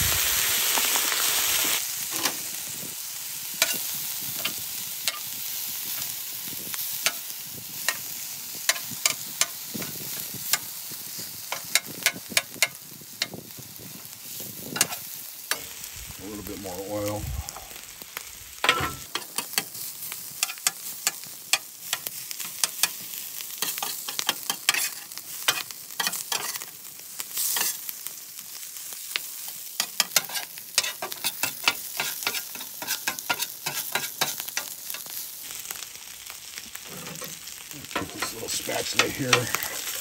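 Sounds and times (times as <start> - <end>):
rice sizzling: 0.0 - 40.0
metal spatula scraping griddle: 21.8 - 26.7, 27.4 - 27.8, 29.8 - 35.2, 36.7 - 40.0.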